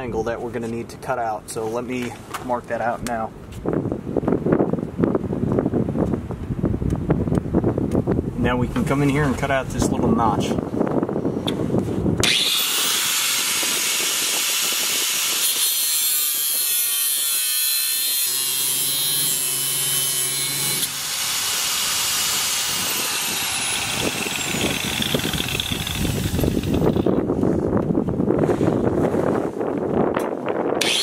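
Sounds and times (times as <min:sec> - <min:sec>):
angle grinder cutting metal: 0:12.2 - 0:27.2, 0:30.8 - 0:31.0.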